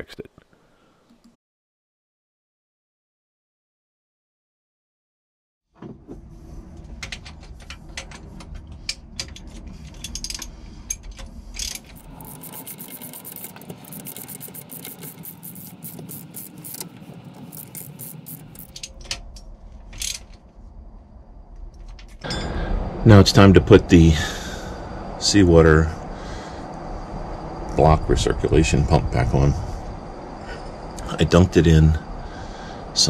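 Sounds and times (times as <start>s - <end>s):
low rumble of handling: 5.8s - 33.0s
ratchet wrench clicking: 11.6s - 18.9s.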